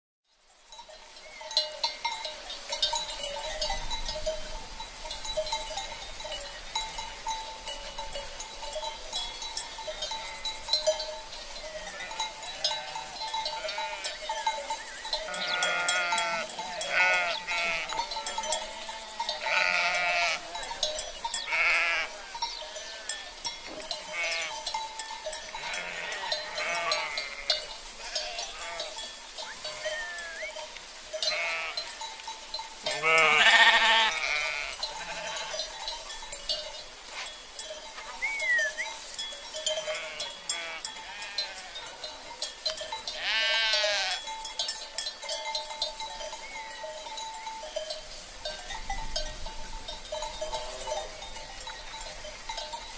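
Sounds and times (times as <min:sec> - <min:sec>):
goat bells tinkling: 0:00.3 - 0:52.9
goats bleating: 0:11.6 - 0:14.4, 0:15.2 - 0:20.8, 0:21.5 - 0:23.4, 0:24.0 - 0:24.6, 0:25.5 - 0:30.6, 0:31.2 - 0:32.0, 0:32.9 - 0:35.6, 0:39.8 - 0:41.9, 0:43.2 - 0:44.3.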